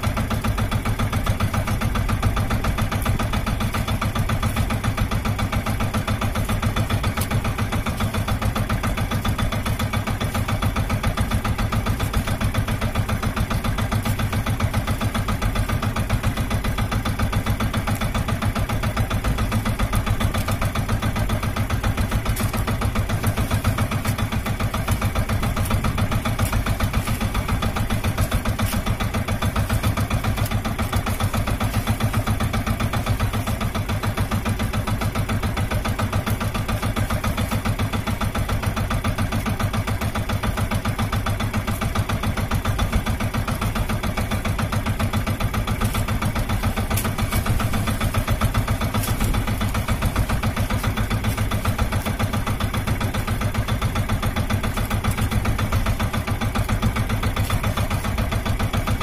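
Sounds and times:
boat engine idling: 0.0s - 59.0s.

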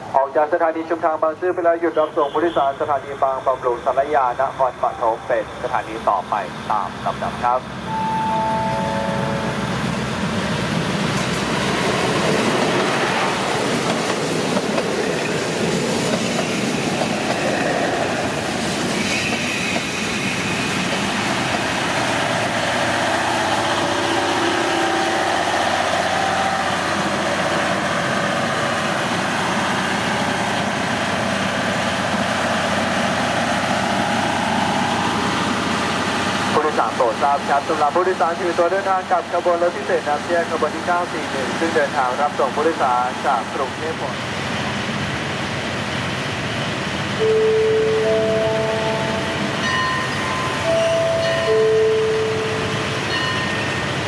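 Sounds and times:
diesel train engine rumble: 0.0s - 54.0s
falling three-note chime: 7.9s - 9.8s
high wheel squeal: 18.9s - 20.8s.

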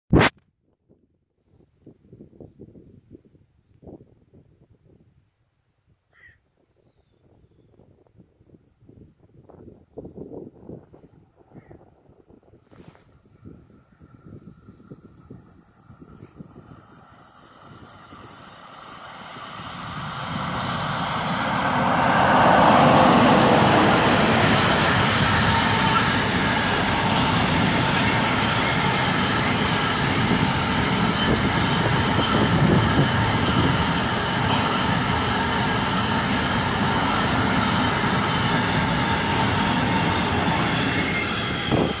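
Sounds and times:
electric locomotives passing: 13.3s - 42.0s.

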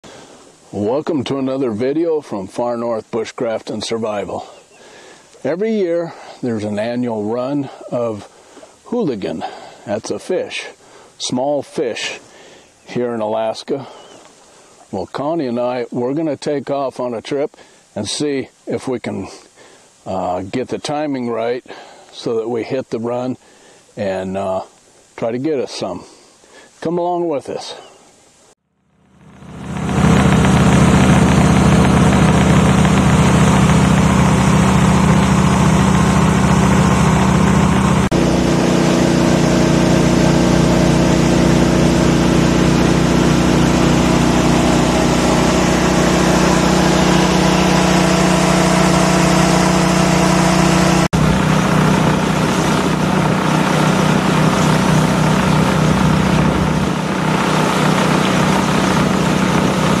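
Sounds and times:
outboard motor running: 28.9s - 60.0s
water rushing along hull: 29.6s - 60.0s.

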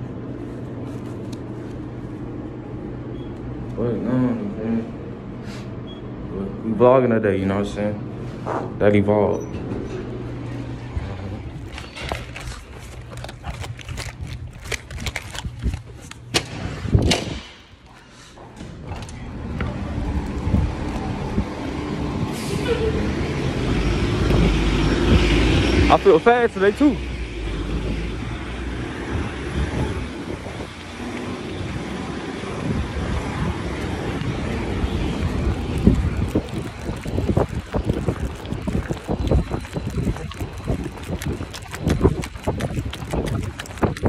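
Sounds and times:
city street traffic: 0.0s - 17.5s, 18.4s - 44.0s
low rumble on phone microphone: 19.2s - 25.8s, 32.5s - 44.0s.

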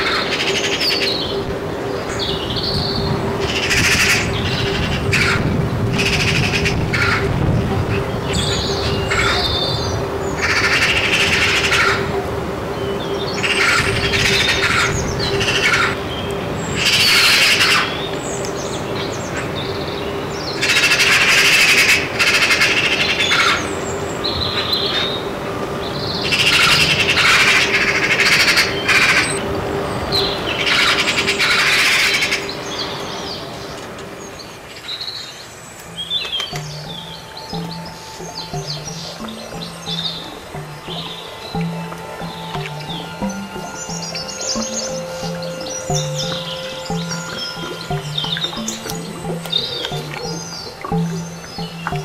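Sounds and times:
magpies chattering: 2.0s - 18.8s, 26.2s - 29.4s, 35.8s - 52.0s.

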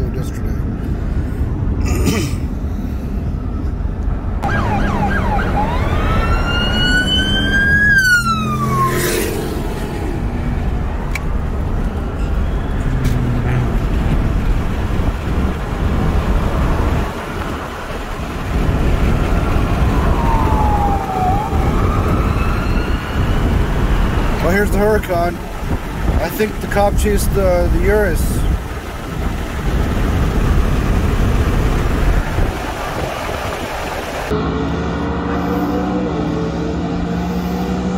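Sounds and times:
road noise inside car: 0.0s - 37.9s
police siren wailing: 4.4s - 9.6s, 19.0s - 24.5s.

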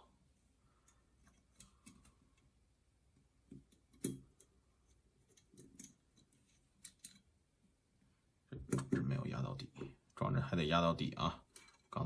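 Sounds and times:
small metal parts clicking: 5.3s - 7.3s.

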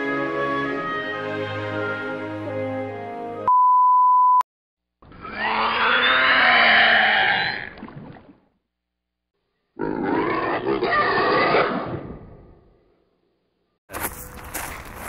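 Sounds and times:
orchestral music: 0.0s - 3.4s
loud steady beep tone: 3.5s - 4.4s.

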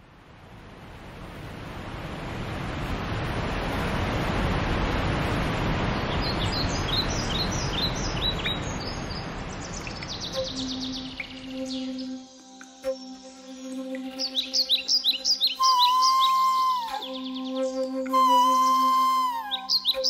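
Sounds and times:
broad rushing noise: 0.0s - 10.3s
birds chirping: 6.0s - 20.0s.

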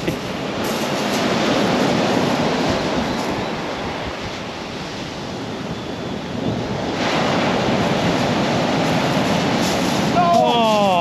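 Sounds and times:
surf breaking on shingle beach: 0.0s - 4.3s, 6.8s - 11.0s
wind buffeting microphone: 0.0s - 11.0s.

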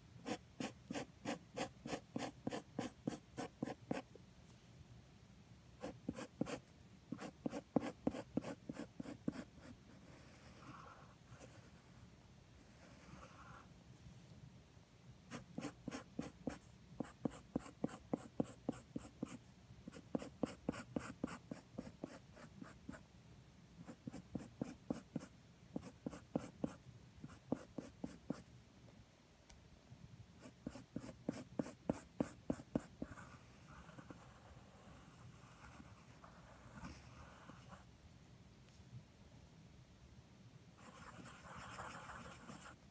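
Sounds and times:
pencil scratching on paper: 0.2s - 4.1s, 5.8s - 11.8s, 15.3s - 23.0s, 23.8s - 28.4s, 30.4s - 37.8s, 40.8s - 42.8s.

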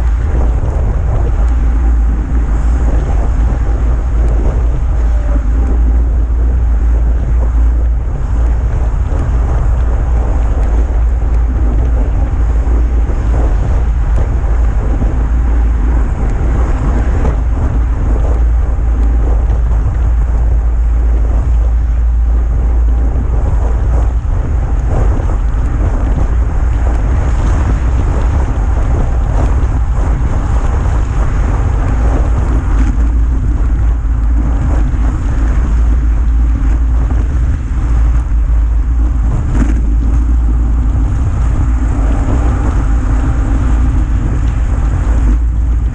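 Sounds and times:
bike road noise: 0.0s - 45.9s
wind buffeting microphone: 0.0s - 45.9s.

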